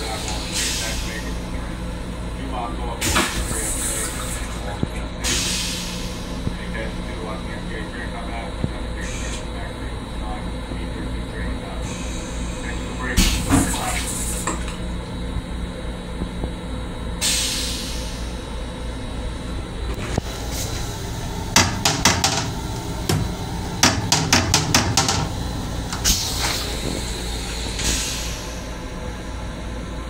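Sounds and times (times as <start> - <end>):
train car rumble: 0.0 - 30.0
plastic toilet seat clacks: 21.6 - 25.3.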